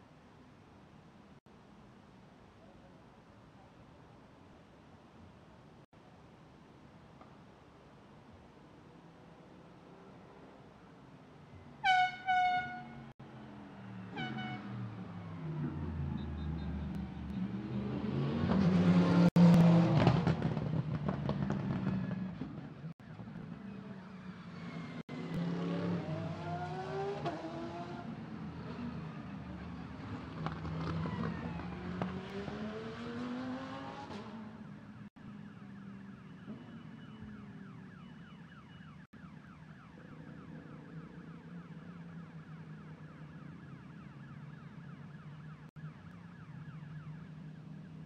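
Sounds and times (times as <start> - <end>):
racing cars revving past: 13.6 - 20.7, 24.4 - 34.6.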